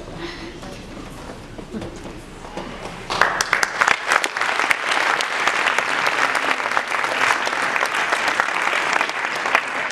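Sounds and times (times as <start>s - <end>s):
audience applauding: 3.1s - 9.9s.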